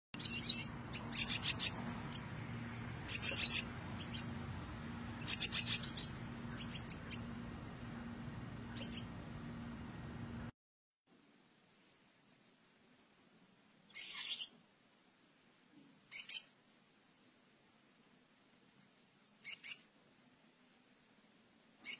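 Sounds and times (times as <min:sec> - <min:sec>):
finch chirping: 0:00.2 - 0:02.4, 0:03.0 - 0:09.2, 0:13.9 - 0:14.5, 0:16.1 - 0:16.5, 0:19.4 - 0:19.8
faint steady hum: 0:00.3 - 0:10.5, 0:11.1 - 0:21.9
finch ticks: 0:00.4 - 0:02.3, 0:03.0 - 0:04.4, 0:05.2 - 0:07.3, 0:19.4 - 0:19.8.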